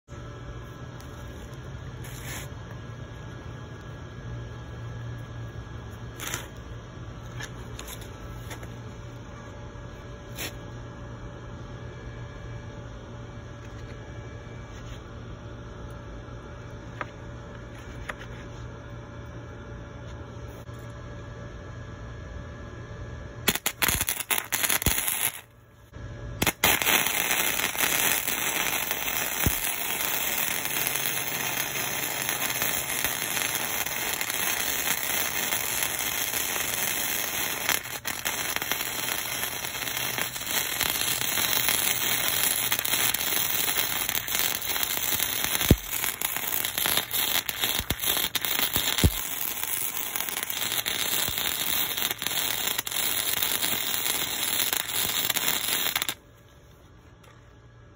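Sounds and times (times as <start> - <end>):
welding arc crackling and sizzling: 0.0 - 10.8, 23.5 - 25.5, 26.4 - 56.3.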